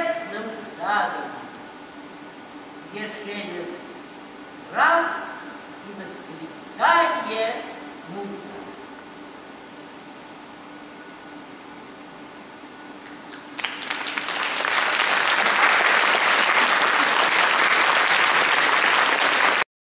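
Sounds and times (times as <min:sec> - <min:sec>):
audience applauding: 0:13.3 - 0:19.7.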